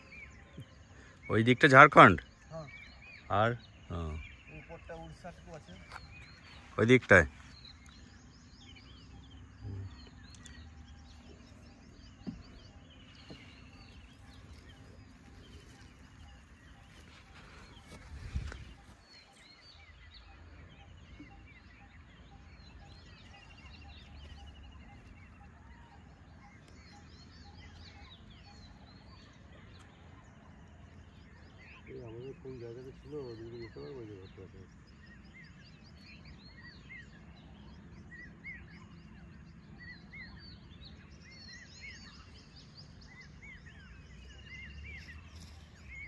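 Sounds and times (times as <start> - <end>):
birds chirping and trilling: 0.0 - 46.0
dull thump: 12.1 - 13.6.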